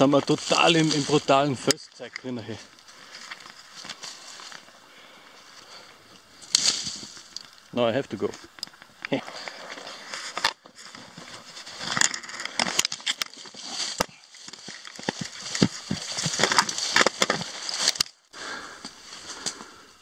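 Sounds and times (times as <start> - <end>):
footsteps on rocky ground: 0.0 - 4.7, 9.2 - 18.2.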